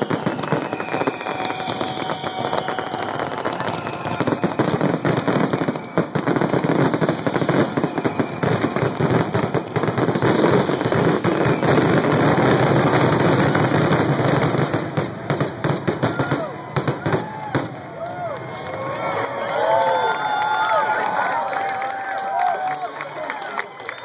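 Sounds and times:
fireworks bursting and crackling: 0.0 - 19.0.

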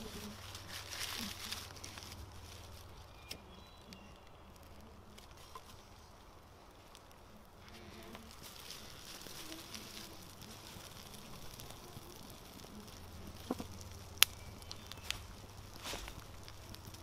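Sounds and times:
fire crackling: 0.0 - 17.0
sharp crack of burning twig: 0.0 - 17.0.

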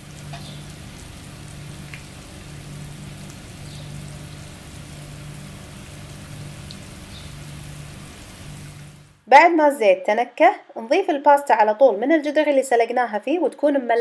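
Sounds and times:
oil sizzling gently: 0.0 - 9.2.

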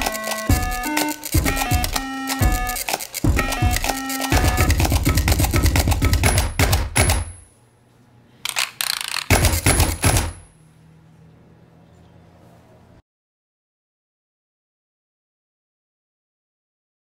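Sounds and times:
rhythmic stamping and clicking: 0.0 - 7.4, 8.5 - 10.5.

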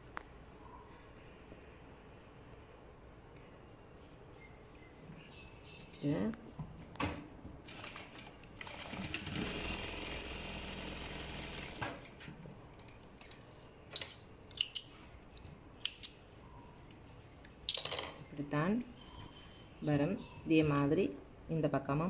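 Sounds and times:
electric sewing machine running: 7.7 - 11.8.

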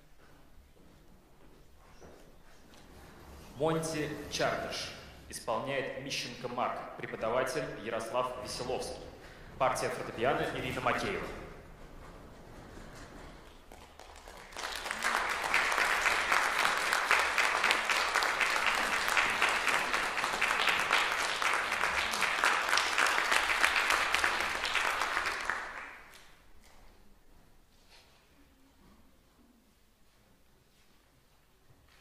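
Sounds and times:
audience applauding: 12.6 - 26.3.

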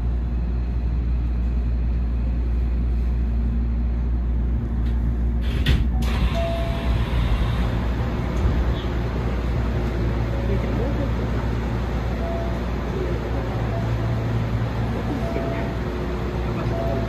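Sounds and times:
train wheels rumbling: 0.8 - 17.0
sharp clatter of train: 4.8 - 10.1.

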